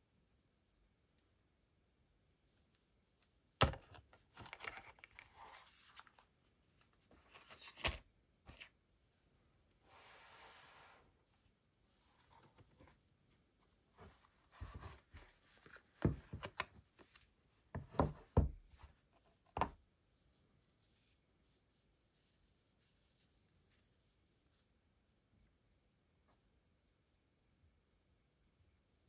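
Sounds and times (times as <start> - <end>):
soft rubbing of gloves: 2.2 - 3.6, 8.7 - 16.2, 18.6 - 25.2
knocks and taps on cardboard: 17.7 - 18.6.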